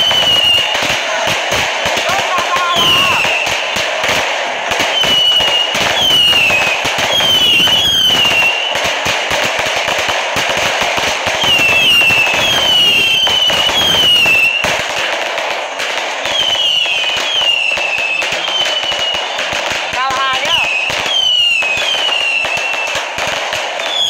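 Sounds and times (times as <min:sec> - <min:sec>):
firework whistles falling in pitch: 0:00.0 - 0:00.9, 0:01.5 - 0:03.8, 0:04.8 - 0:09.0, 0:11.2 - 0:14.8, 0:16.2 - 0:24.0
fireworks crackling bangs: 0:00.0 - 0:24.0.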